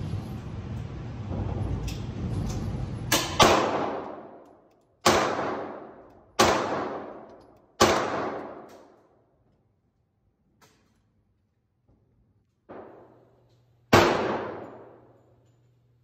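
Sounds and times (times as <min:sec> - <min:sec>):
pistol shots echoing indoors: 0:03.1 - 0:09.5, 0:12.5 - 0:15.5.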